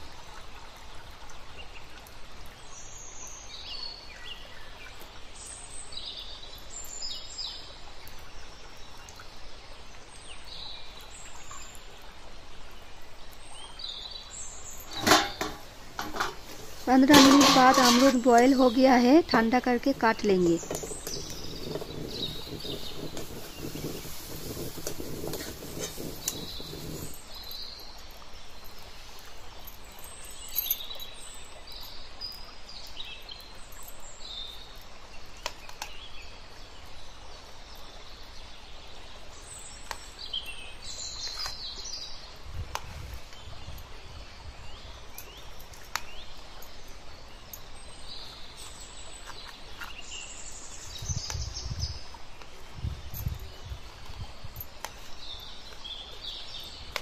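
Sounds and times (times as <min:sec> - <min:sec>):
outdoor background noise: 0:00.0 - 0:57.0
water boiling rumble: 0:07.5 - 0:29.7
birds chirping: 0:13.5 - 0:32.4.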